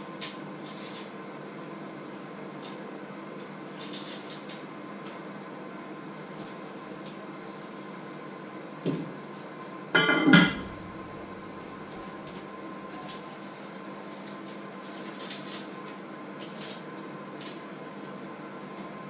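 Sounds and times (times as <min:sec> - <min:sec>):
kitchen pots clattering: 0:10.0 - 0:10.8
low hum: 0:10.0 - 0:12.0.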